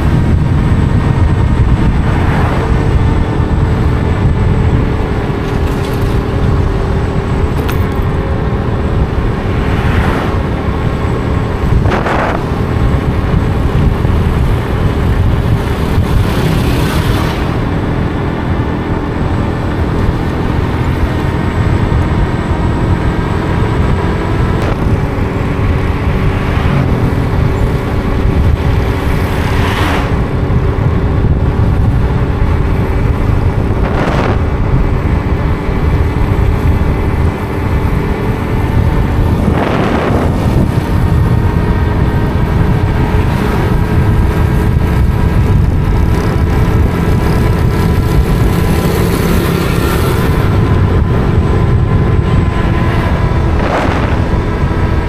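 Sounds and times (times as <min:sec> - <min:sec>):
vehicle engine and road noise: 0:00.0 - 0:55.0
whooshes: 0:29.1 - 0:30.4.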